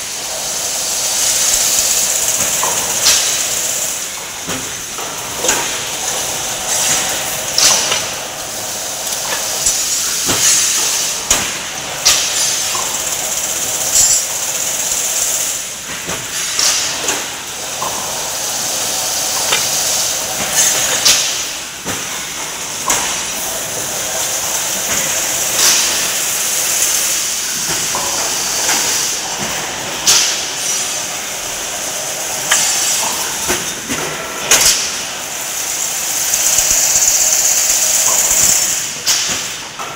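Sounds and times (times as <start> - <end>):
machine high hiss: 0.0 - 39.8
sharp metallic clank: 9.6 - 13.0.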